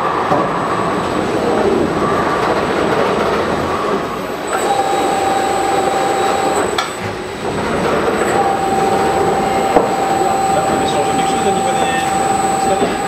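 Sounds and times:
machine mechanical rumble: 0:02.8 - 0:13.0
motor whine: 0:04.5 - 0:06.8, 0:08.2 - 0:13.0.

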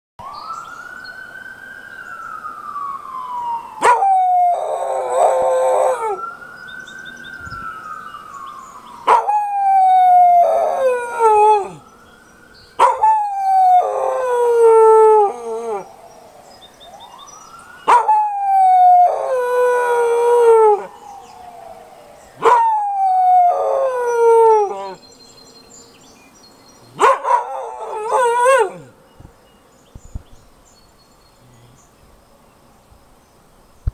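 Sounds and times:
distant siren wailing: 0:00.2 - 0:29.1
dog howling: 0:03.8 - 0:06.2, 0:09.1 - 0:11.8, 0:12.8 - 0:15.9, 0:17.9 - 0:20.9, 0:22.4 - 0:25.0, 0:27.0 - 0:28.9.

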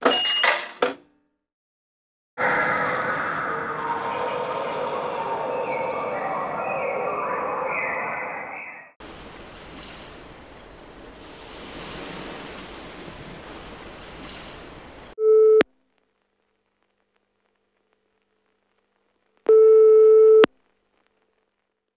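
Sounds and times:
insect-like high chirps: 0:09.0 - 0:15.2
steady hiss: 0:09.0 - 0:15.2.

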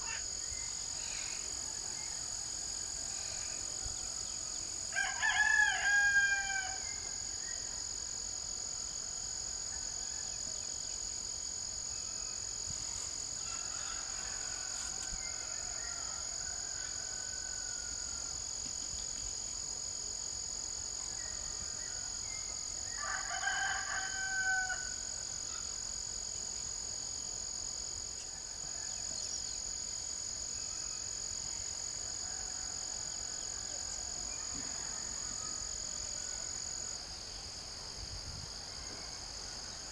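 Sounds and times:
high-pitched insect drone: 0:00.0 - 0:08.0
rooster crowing: 0:01.6 - 0:07.0, 0:13.4 - 0:18.4, 0:21.2 - 0:25.1, 0:32.1 - 0:36.8.

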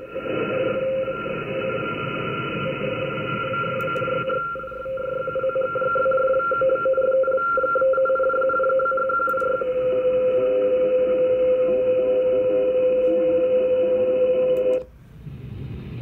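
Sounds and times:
receiver hiss: 0:00.0 - 0:07.0
radio whistling tones: 0:00.0 - 0:14.6.

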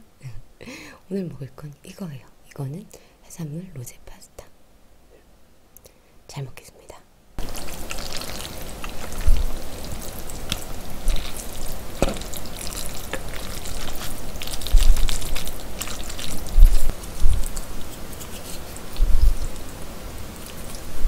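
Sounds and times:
spaghetti squelching being stirred: 0:07.4 - 0:21.0
fork knocking on plate: 0:12.0 - 0:12.3.

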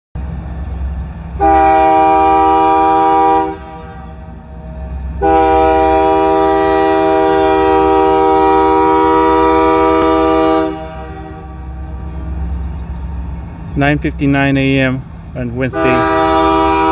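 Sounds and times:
locomotive air horn chord: 0:01.4 - 0:12.5, 0:15.6 - 0:16.9.

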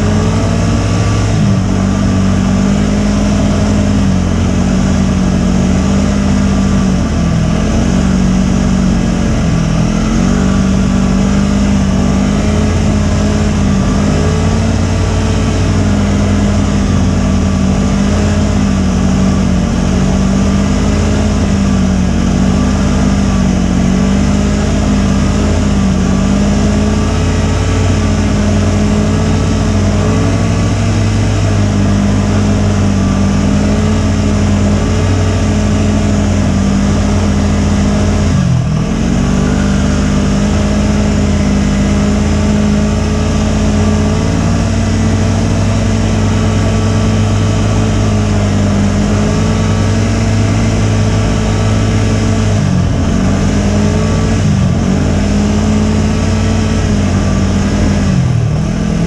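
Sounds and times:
snowmobile engine running: 0:00.0 - 0:59.0.

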